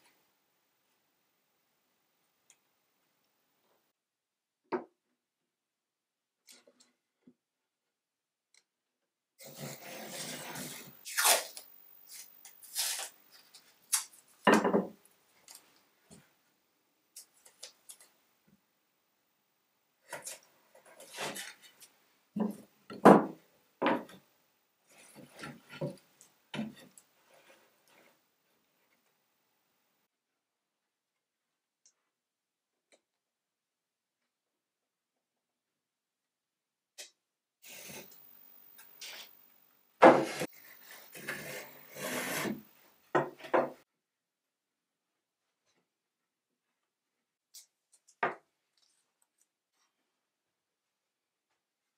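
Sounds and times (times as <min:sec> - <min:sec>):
wood scraping on wood: 0:09.4 - 0:11.0, 0:20.1 - 0:21.8, 0:40.0 - 0:43.8
wooden strips knocking and scraping: 0:14.4 - 0:15.0, 0:22.4 - 0:24.2, 0:40.0 - 0:40.5, 0:42.1 - 0:43.8.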